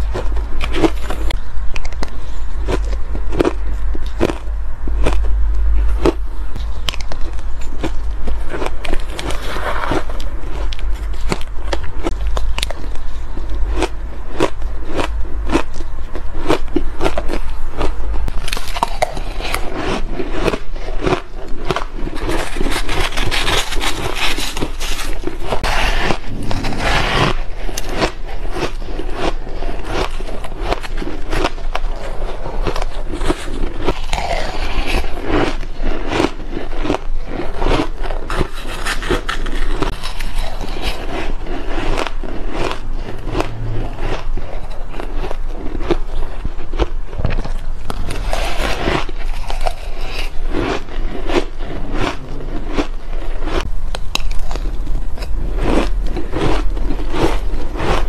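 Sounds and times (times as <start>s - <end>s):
ice crunching while chewed: 0.0s - 58.0s
metal spoon scraping ice: 18.4s - 46.5s, 48.0s - 53.4s.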